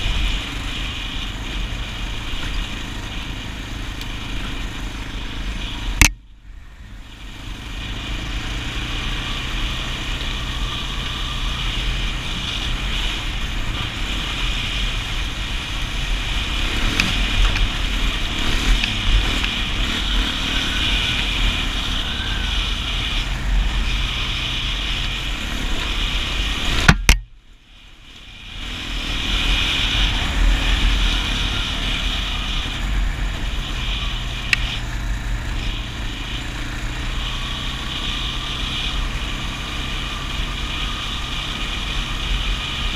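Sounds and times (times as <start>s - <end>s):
quad bike engine running: 0.0s - 42.9s
sharp click: 6.0s - 6.2s.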